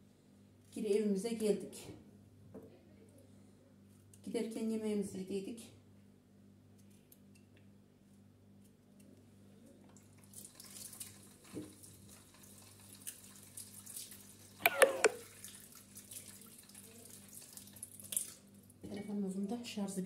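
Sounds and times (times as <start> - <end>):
tap running into sink: 14.6 - 15.2.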